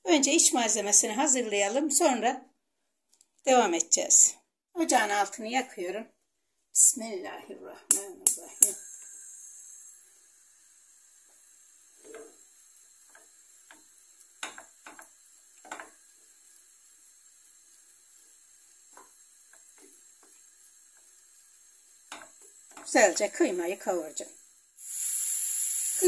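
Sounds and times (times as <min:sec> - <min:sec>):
wooden spoon scraping a pan: 0:11.9 - 0:16.4, 0:18.2 - 0:23.8.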